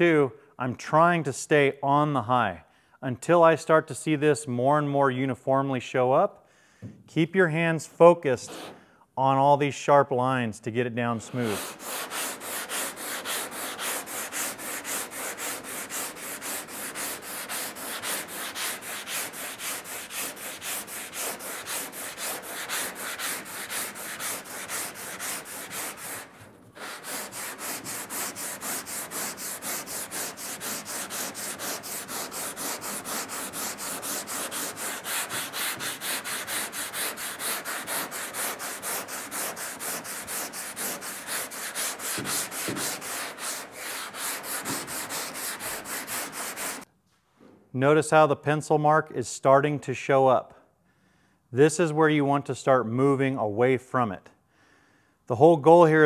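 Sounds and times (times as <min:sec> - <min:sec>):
sandpaper rasping on filler: 0:08.4 - 0:08.8, 0:11.2 - 0:46.9.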